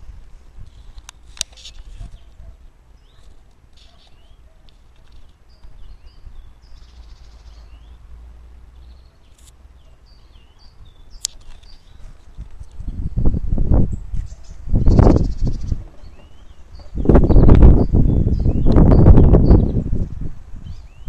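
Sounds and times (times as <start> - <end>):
songbirds chirping: 0.0 - 21.0
sharp click: 11.2 - 11.8.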